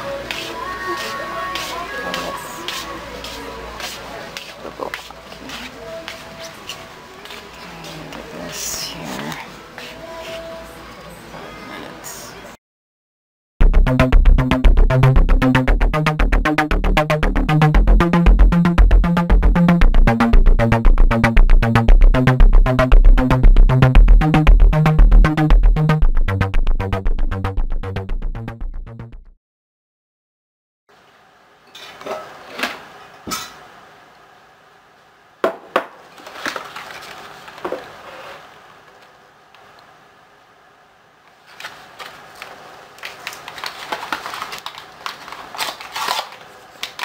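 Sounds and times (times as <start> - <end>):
electronic music with synth bass: 13.6 - 29.4
kitchen items knocking on countertop: 35.4 - 36.0.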